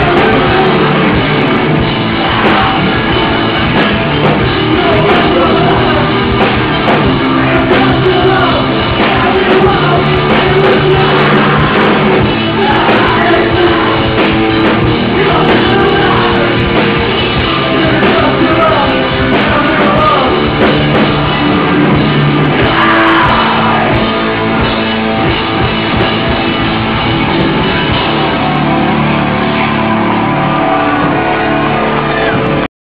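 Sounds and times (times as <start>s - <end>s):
shouted vocals: 0.0s - 3.4s, 22.5s - 24.6s
bass: 0.0s - 32.7s
distorted electric guitars: 0.0s - 32.7s
drums: 0.0s - 32.7s.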